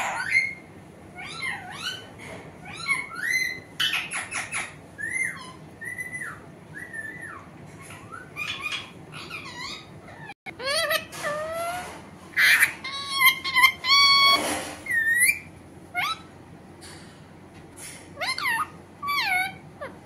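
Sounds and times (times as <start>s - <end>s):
parakeet chattering calls: 0.0s - 16.3s, 18.2s - 20.0s.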